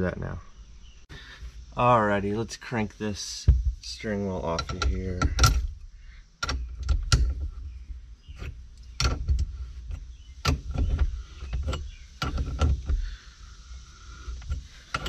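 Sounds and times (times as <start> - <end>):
wrench clicking and clanking: 4.5 - 5.8, 14.3 - 15.0.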